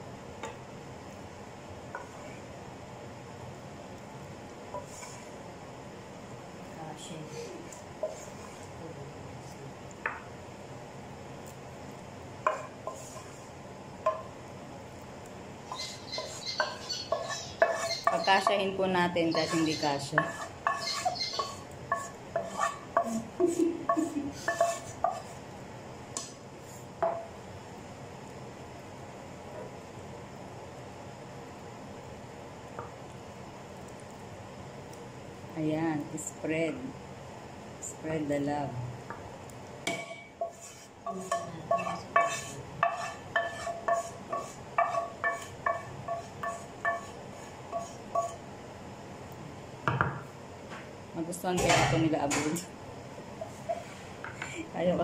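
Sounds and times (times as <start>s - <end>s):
wooden spatula knocking on skillet: 12.4s - 13.0s, 14.0s - 14.4s, 15.7s - 18.7s, 19.3s - 25.3s, 27.0s - 27.3s, 39.8s - 48.4s, 49.8s - 50.3s
wooden spoon tapping a ringing pan: 41.2s - 47.1s.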